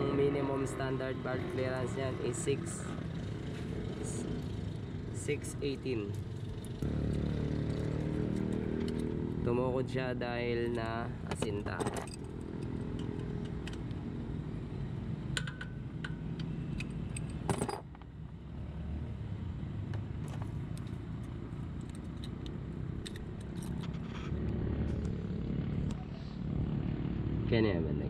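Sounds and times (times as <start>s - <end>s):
road traffic rumble: 0.0s - 28.0s
metal tools clicking on engine: 8.0s - 9.1s, 10.5s - 14.0s.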